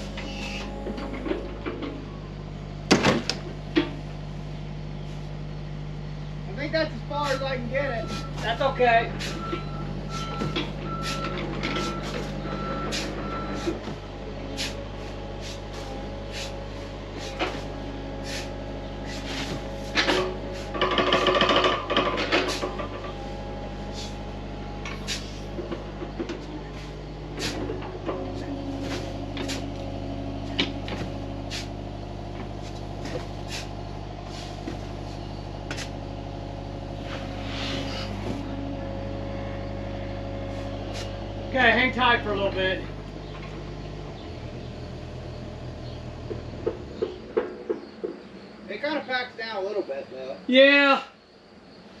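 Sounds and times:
engine running steadily: 0.0s - 48.8s
backup alarm beeping: 7.2s - 13.8s
sharp clicks and knocks: 19.9s - 23.2s.

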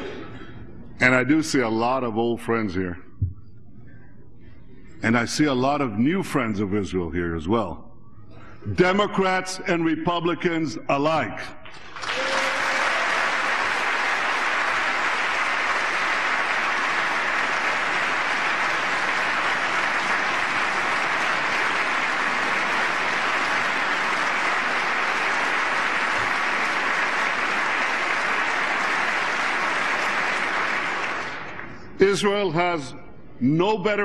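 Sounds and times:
steady applause: 11.6s - 32.0s.

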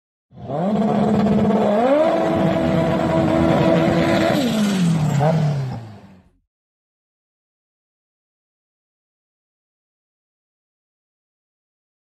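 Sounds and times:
engine revving: 0.3s - 6.4s.

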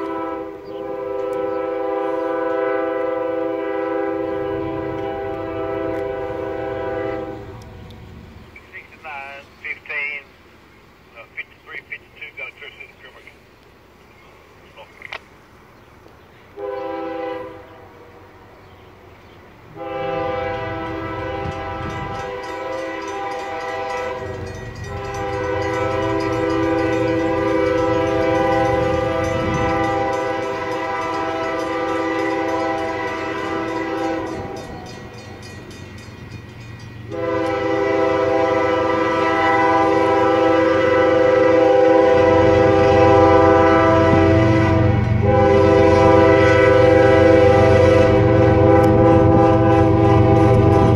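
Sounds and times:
locomotive air horn blasts: 0.0s - 7.6s, 16.6s - 18.2s, 19.7s - 34.8s, 37.1s - 50.9s
locomotive diesel engines rumbling: 0.0s - 50.9s.

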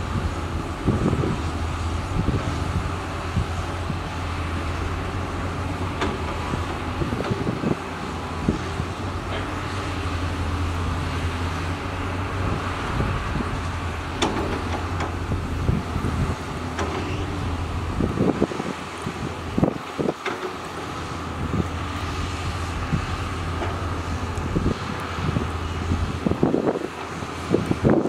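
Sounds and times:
excavator diesel engines running: 0.0s - 28.0s.

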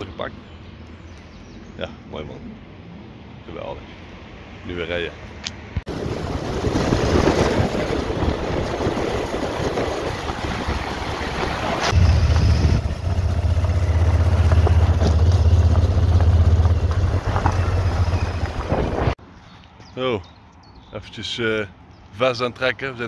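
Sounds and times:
wind rushing over microphone: 5.7s - 13.2s, 18.0s - 19.2s
heavy low rumble: 5.9s - 19.2s
motorcycle engine: 5.9s - 19.2s.

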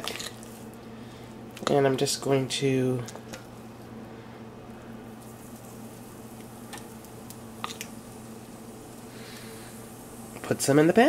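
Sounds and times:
steady low hum: 0.0s - 11.0s
faint hiss: 4.0s - 11.0s.

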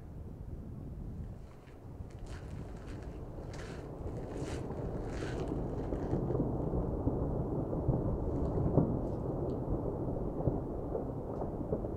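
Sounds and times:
volcanic eruption rumbling: 0.9s - 11.9s
sharp cracks: 1.3s - 6.4s.

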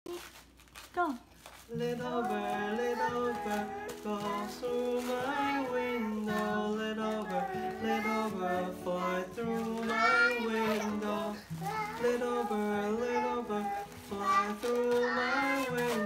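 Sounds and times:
strummed acoustic guitar: 1.7s - 16.0s
young child singing: 1.9s - 16.0s.

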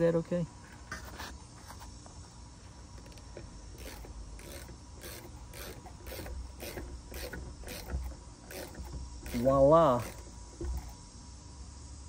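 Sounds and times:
socket wrench ratcheting: 3.0s - 11.0s.

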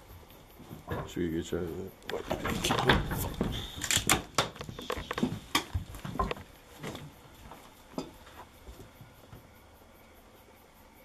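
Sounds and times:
footsteps on debris-strewn wooden floor: 2.4s - 9.1s.

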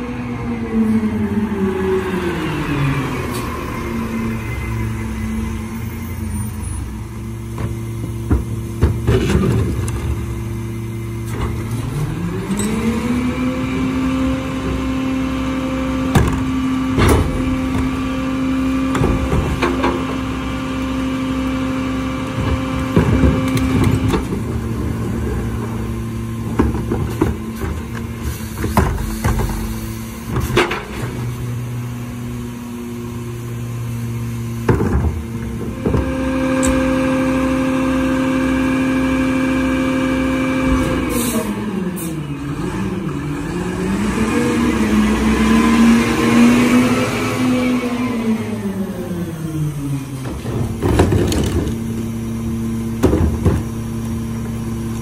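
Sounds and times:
garbage truck engine idling: 0.0s - 43.8s, 47.8s - 55.0s
hydraulic packer running: 0.0s - 55.0s
carts banging against hopper: 7.5s - 10.6s, 15.9s - 20.9s, 22.0s - 31.6s, 34.6s - 38.0s, 50.2s - 55.0s.

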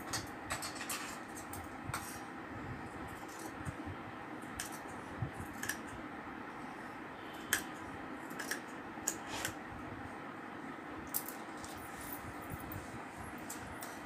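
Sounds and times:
scissors snipping fabric: 5.4s - 5.9s, 8.3s - 9.6s.

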